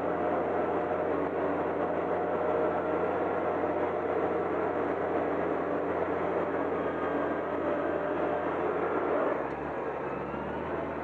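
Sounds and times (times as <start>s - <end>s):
bulldozer diesel engine running: 0.0s - 11.0s.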